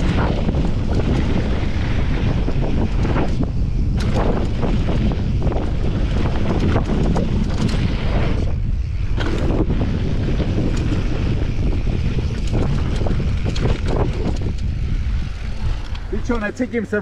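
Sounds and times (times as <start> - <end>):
bike tyres rolling on gravel: 0.0 - 17.0
stones and bike rattling: 0.0 - 17.0
wind buffeting microphone: 0.0 - 17.0.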